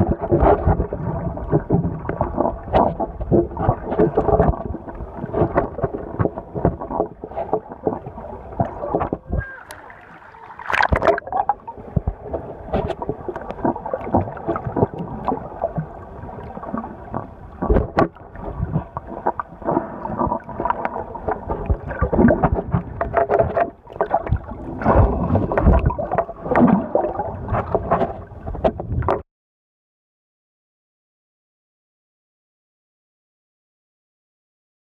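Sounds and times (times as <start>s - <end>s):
underwater thumps and knocks: 0.0s - 9.5s, 10.7s - 29.2s
water sloshing and gurgling: 0.0s - 29.2s.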